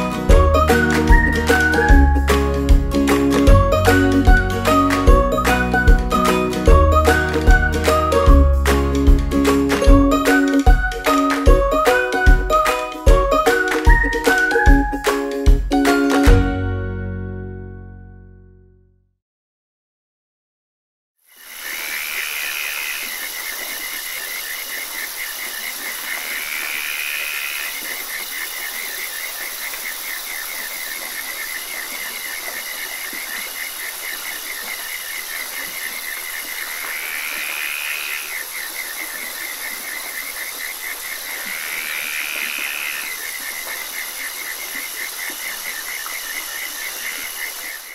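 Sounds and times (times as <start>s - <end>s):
frog rising call: 21.3s - 47.9s
frogs pulsing trill: 21.3s - 47.9s.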